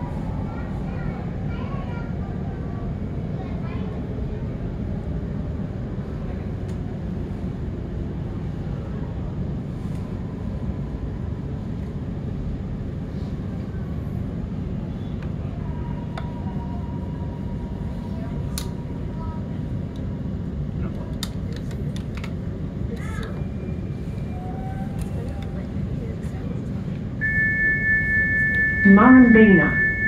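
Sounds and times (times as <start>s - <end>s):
thin high tone: 27.2s - 30.0s.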